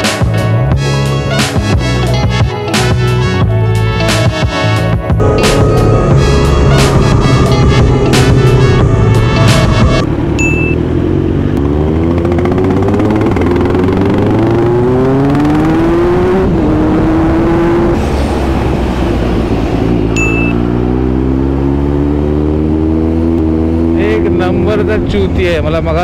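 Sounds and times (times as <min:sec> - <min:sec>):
motorcycle engine accelerating: 0:05.2 - 0:25.6.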